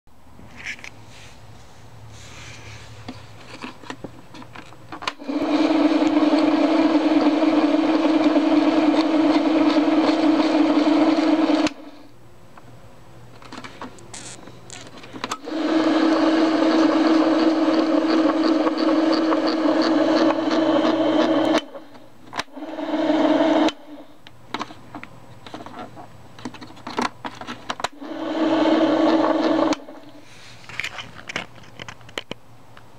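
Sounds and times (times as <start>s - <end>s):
grinder motor humming: 5.2s - 11.8s, 14.1s - 21.9s, 22.5s - 24.0s, 28.0s - 30.2s.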